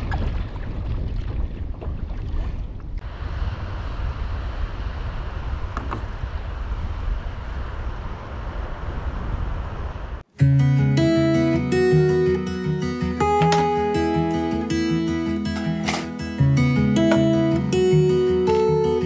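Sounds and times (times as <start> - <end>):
wind buffeting microphone: 0.0 - 10.2.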